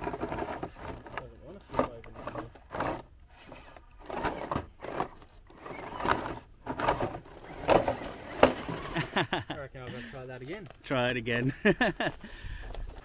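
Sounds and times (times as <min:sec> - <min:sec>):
toy truck knocking and scraping on rock: 0:00.0 - 0:09.0
small electric motor whirring: 0:00.0 - 0:09.1.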